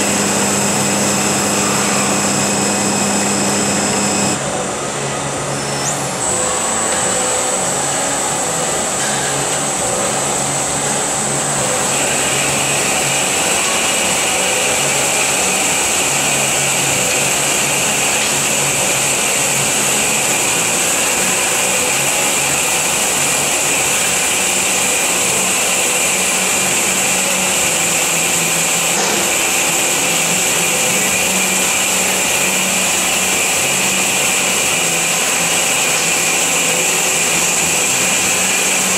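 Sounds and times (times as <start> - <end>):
band saw cutting metal bar: 0.0 - 4.5, 5.6 - 38.9
lower whine: 0.0 - 23.1.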